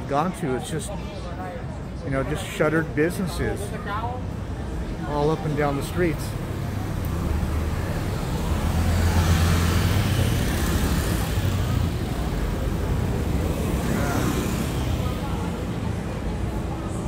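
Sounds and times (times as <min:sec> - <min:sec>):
road noise: 0:00.0 - 0:17.0
vehicle engine passing by: 0:06.4 - 0:15.6.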